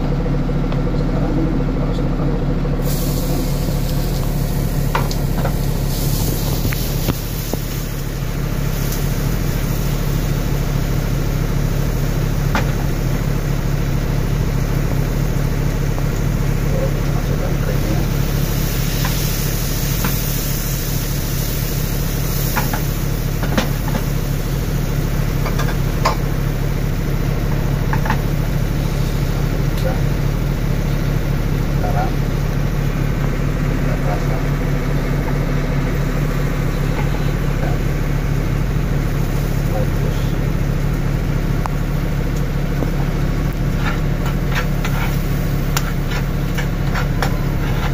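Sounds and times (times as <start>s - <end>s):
low machine hum: 0.0s - 47.9s.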